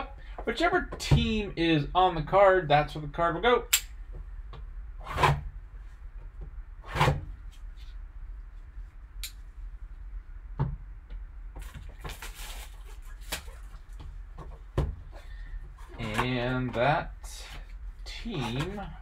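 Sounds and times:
plastic wrap crinkling: 11.6s - 14.0s
handling thumps: 13.9s - 17.0s.

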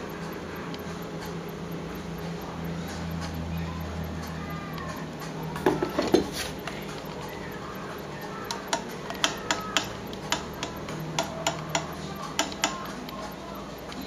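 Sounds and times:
sharp mechanical clicks: 0.0s - 14.0s.

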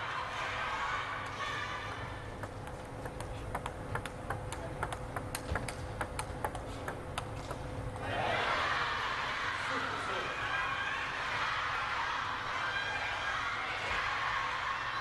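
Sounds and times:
table tennis ball clicking: 2.3s - 8.0s.

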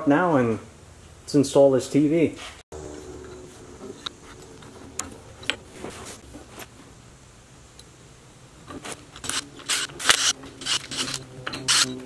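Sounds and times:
metal scraping and rustling: 2.4s - 7.0s, 8.6s - 12.0s.

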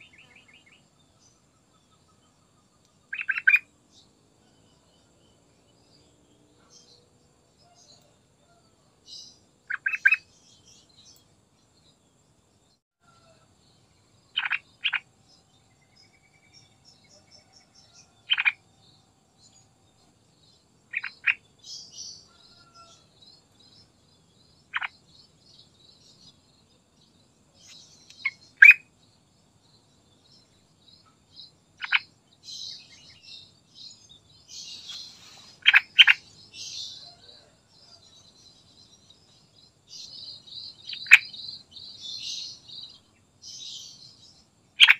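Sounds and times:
faint high chirping: 0.0s - 44.9s.

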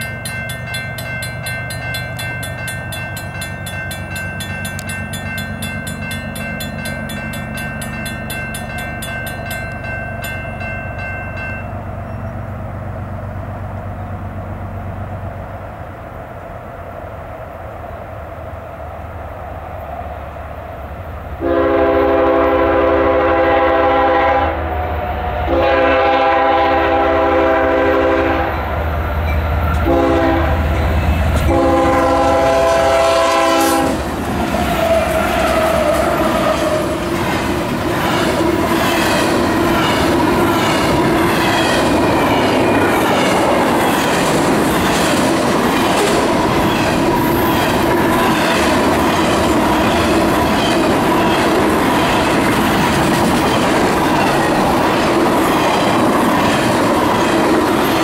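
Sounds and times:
locomotive air horn: 21.4s - 28.6s, 29.8s - 30.8s, 31.4s - 37.0s
train wheel clatter and rumble: 25.6s - 58.0s.

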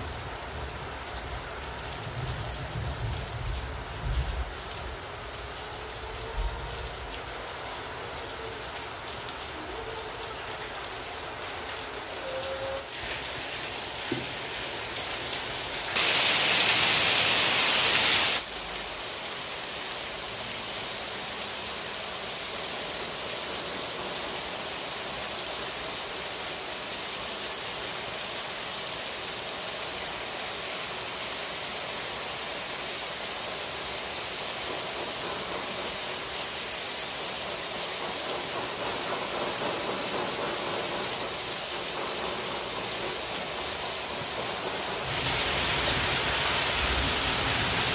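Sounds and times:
loud rushing hiss: 12.0s - 47.9s
gas torch flame hissing: 16.0s - 18.4s.

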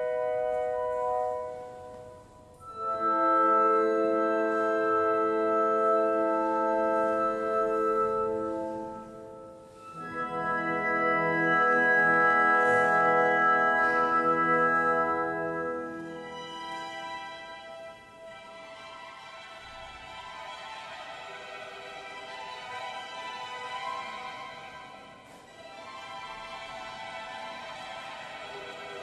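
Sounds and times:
orchestra playing held chords: 2.6s - 19.6s.

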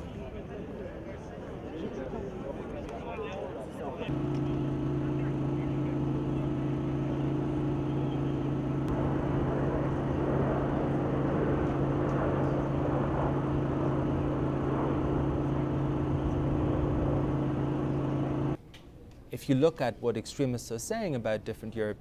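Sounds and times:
low mechanical hum: 0.0s - 19.4s
outdoor background noise: 0.0s - 22.0s.

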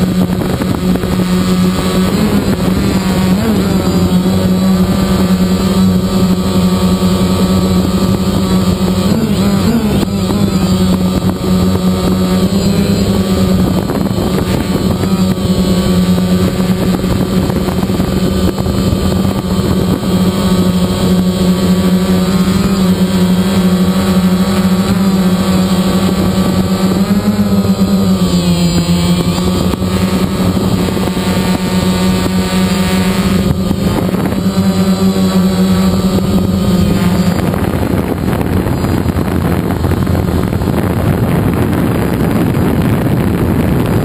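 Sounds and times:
drone propellers humming: 0.0s - 44.0s.

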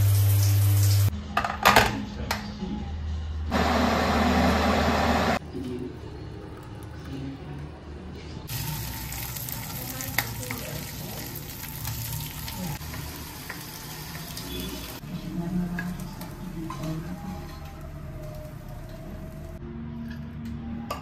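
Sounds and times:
meat sizzling in a pan: 8.5s - 15.0s.

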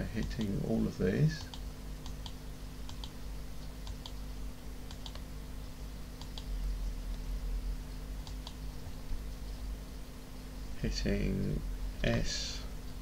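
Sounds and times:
steady low hum: 0.0s - 13.0s
computer mouse clicking: 0.2s - 0.5s, 1.4s - 3.2s, 3.8s - 4.2s, 4.8s - 5.3s, 6.2s - 6.5s, 8.2s - 8.6s.

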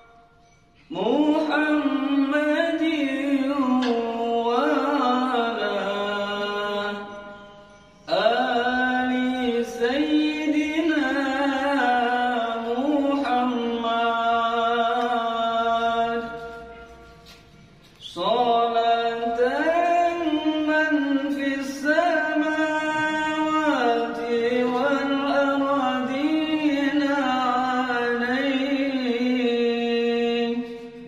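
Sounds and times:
man chanting: 0.9s - 17.3s, 18.0s - 31.0s
breath: 30.7s - 31.0s.

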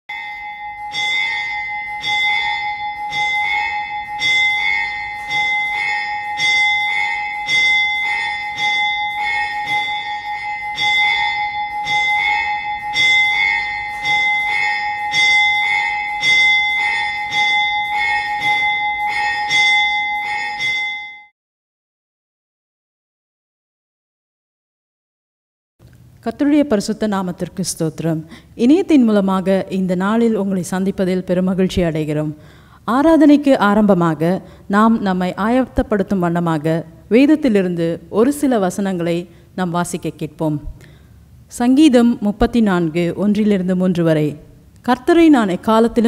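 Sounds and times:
bell ringing with quick strikes: 0.1s - 21.3s.

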